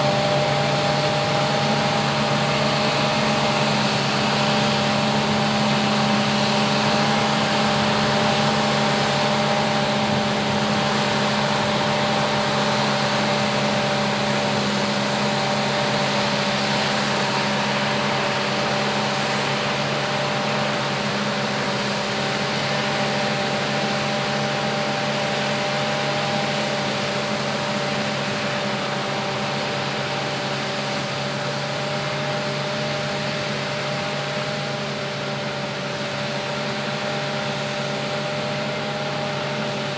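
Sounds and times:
broad rushing noise: 0:00.0 - 0:39.9
forage harvester mechanical whine: 0:00.0 - 0:39.9.

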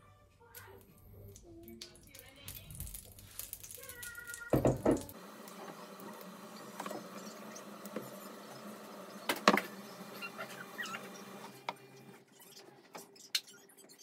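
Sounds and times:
batter sizzling in a frying pan: 0:02.6 - 0:11.0.

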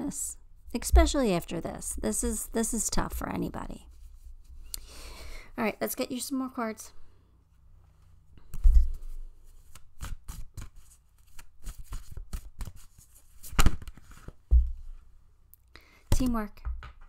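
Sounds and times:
cards being shuffled: 0:08.4 - 0:14.4.

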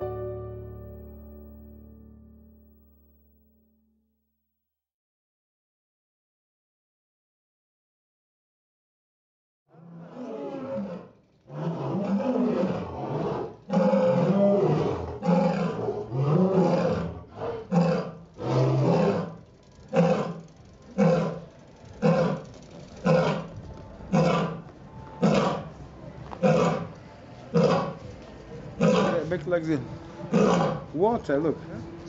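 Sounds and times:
lion roaring: 0:09.8 - 0:21.4, 0:22.0 - 0:22.4, 0:23.0 - 0:23.5, 0:24.1 - 0:24.6, 0:25.2 - 0:25.7, 0:26.4 - 0:26.9, 0:27.5 - 0:28.0, 0:28.8 - 0:29.3, 0:30.3 - 0:30.9.

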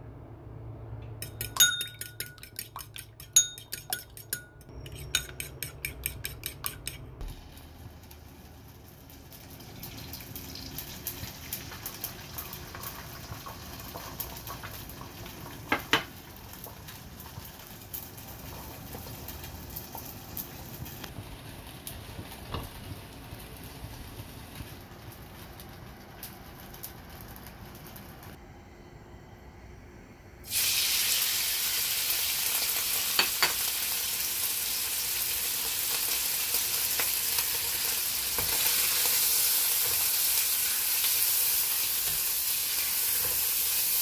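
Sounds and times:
fork clicking against bowl: 0:01.2 - 0:07.0
egg sizzling in oil: 0:07.2 - 0:28.4, 0:30.4 - 0:44.0.

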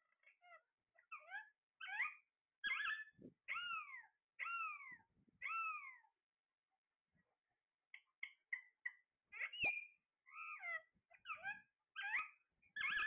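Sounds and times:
parakeet calling: 0:08.2 - 0:13.0.

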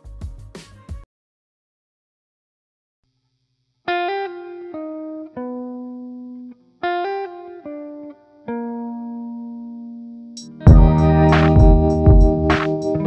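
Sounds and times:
plucked notes music: 0:10.4 - 0:13.0.

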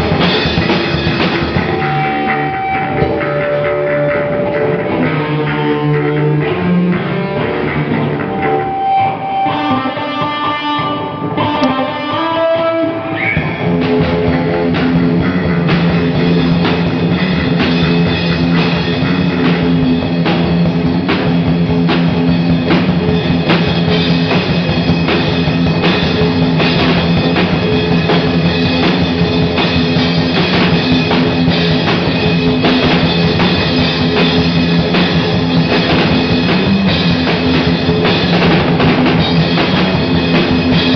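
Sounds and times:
driving drumming: 0:00.0 - 0:40.9
electric guitars: 0:00.0 - 0:40.9.

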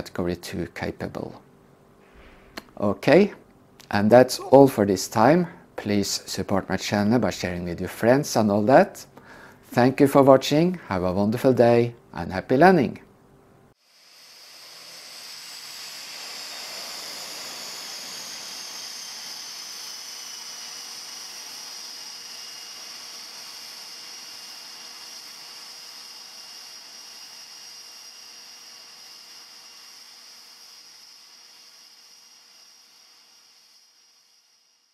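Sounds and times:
high turbine whine: 0:13.8 - 0:34.9.

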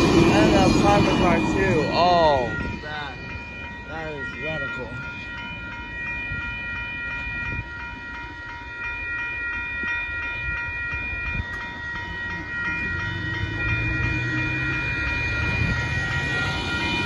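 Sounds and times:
low rumble: 0:00.0 - 0:04.1
railroad crossing bells ringing: 0:00.0 - 0:17.0.

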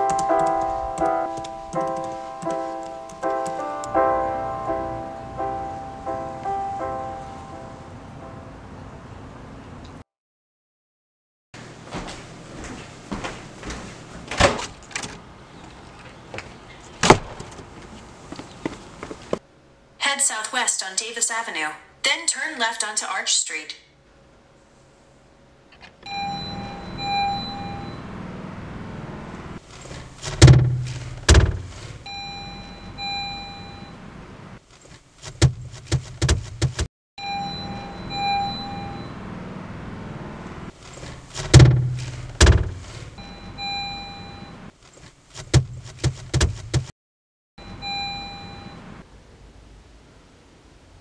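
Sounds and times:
low steady hum: 0:24.0 - 0:34.6, 0:37.2 - 0:44.7
car warning chime dinging: 0:26.0 - 0:28.2, 0:32.1 - 0:34.0, 0:37.2 - 0:39.2, 0:41.6 - 0:44.6, 0:47.6 - 0:49.0
loud thumps: 0:30.2 - 0:32.0, 0:35.3 - 0:36.9, 0:41.3 - 0:43.0, 0:45.4 - 0:46.9.

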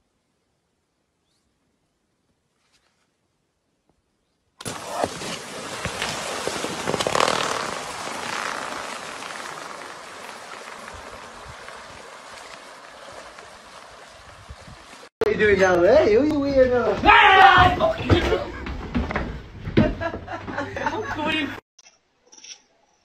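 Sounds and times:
water gushing onto a lawn: 0:04.6 - 0:15.2.

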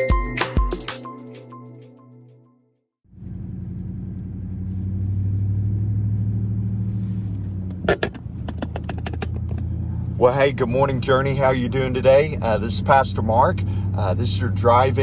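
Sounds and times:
road noise: 0:03.1 - 0:15.0
vehicle engine drone: 0:03.1 - 0:15.0.

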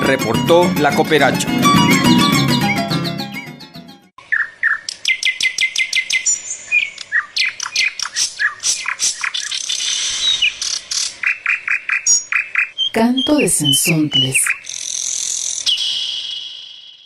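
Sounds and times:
birds chirping and calling: 0:04.2 - 0:16.8.

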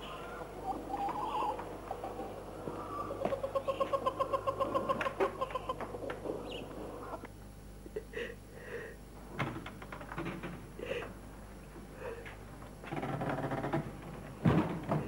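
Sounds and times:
woman sobbing: 0:07.8 - 0:09.0.

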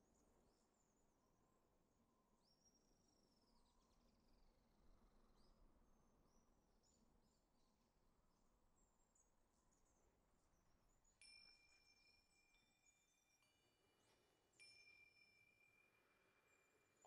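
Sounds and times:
soft chime music: 0:11.2 - 0:17.0.

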